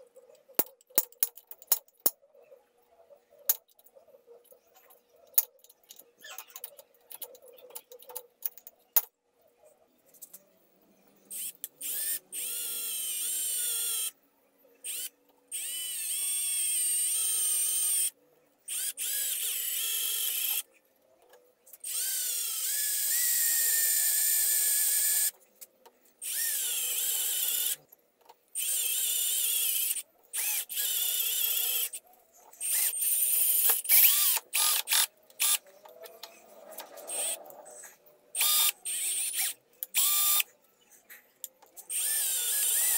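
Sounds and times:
electric drill whining into metal: 0:14.8 - 0:20.7, 0:21.8 - 0:25.3, 0:26.2 - 0:27.8, 0:28.6 - 0:32.0, 0:32.6 - 0:35.6, 0:37.0 - 0:37.4, 0:38.4 - 0:40.5, 0:41.9 - 0:42.9.

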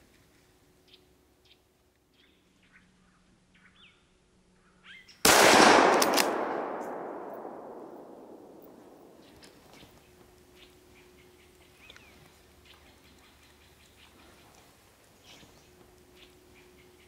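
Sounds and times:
faint bird chirps: 0:00.8 - 0:05.2, 0:09.0 - 0:17.0
rifle shot with echo: 0:05.2 - 0:09.5.

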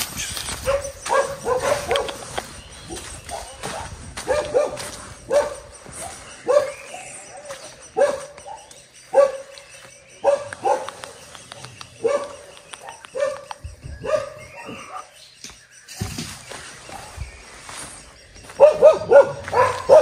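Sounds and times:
dog barking: 0:00.6 - 0:02.3, 0:02.9 - 0:09.5, 0:10.2 - 0:11.0, 0:12.0 - 0:15.1, 0:18.6 - 0:20.0.

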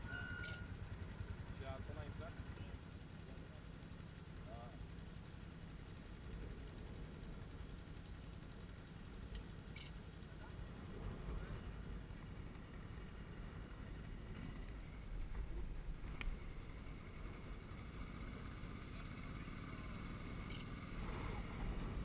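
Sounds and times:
atv engines rumbling: 0:00.0 - 0:22.0.

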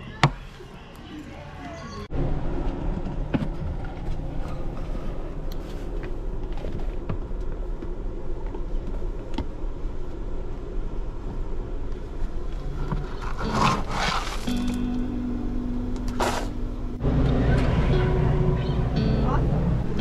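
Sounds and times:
steady low rumble: 0:02.0 - 0:20.0
rummaging through items: 0:12.6 - 0:14.9.

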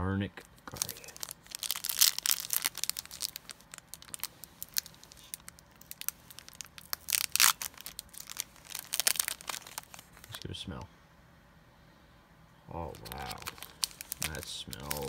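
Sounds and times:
foil ripping: 0:00.7 - 0:10.4, 0:13.0 - 0:15.0
foil wrapper crinkling and tearing: 0:00.7 - 0:10.4, 0:12.9 - 0:15.0.

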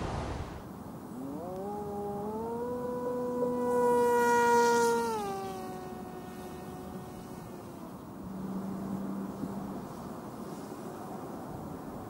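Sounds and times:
model plane motor whining: 0:01.2 - 0:08.1.

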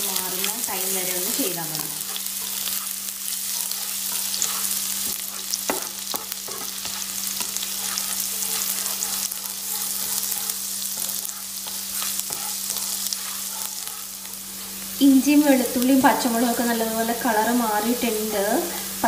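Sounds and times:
aromatics sizzling in oil: 0:00.0 - 0:19.0
spatula scraping and tapping pan: 0:01.2 - 0:14.9.

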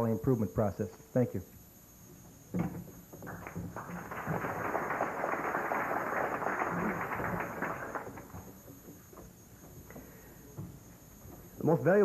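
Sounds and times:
audience applauding: 0:03.3 - 0:08.5.

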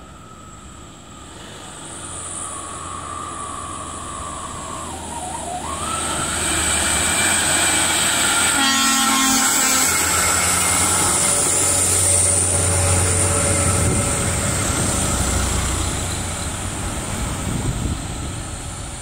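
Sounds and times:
heavy truck diesel engines: 0:00.0 - 0:19.0
truck horn: 0:08.2 - 0:11.4.

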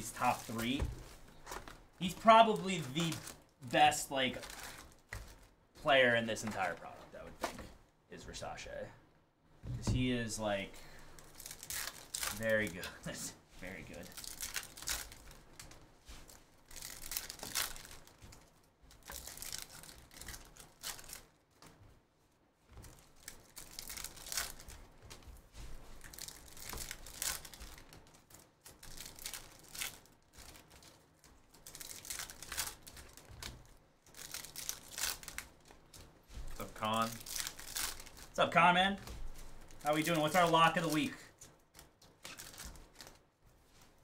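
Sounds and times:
foil wrappers crinkling and tearing: 0:00.0 - 0:06.9, 0:10.8 - 0:21.4, 0:22.8 - 0:44.0.

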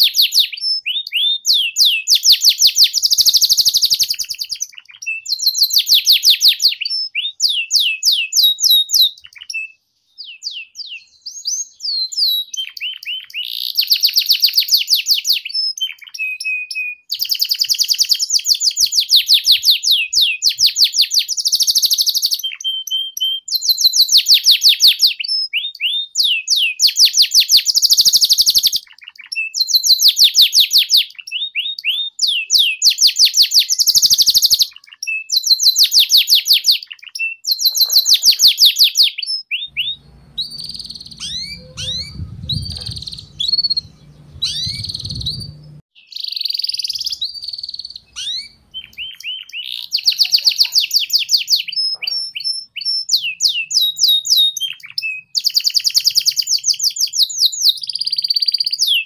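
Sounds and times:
canary trilling and chirping: 0:36.7 - 0:52.8
low rumble: 0:39.8 - 0:45.8.

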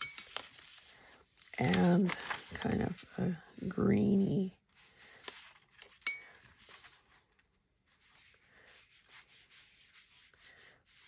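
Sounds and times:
brush clinking on container: 0:00.0 - 0:00.6, 0:05.8 - 0:06.4
brush and paper rustles: 0:00.2 - 0:03.0, 0:04.7 - 0:11.0.

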